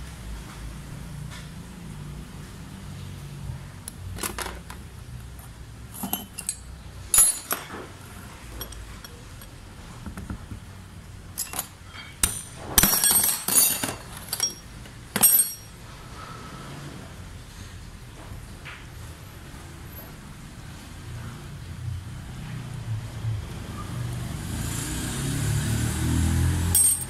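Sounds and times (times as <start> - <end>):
metal parts clinking on workbench: 4.2 - 4.8, 5.9 - 9.5, 11.4 - 15.8, 26.7 - 27.0.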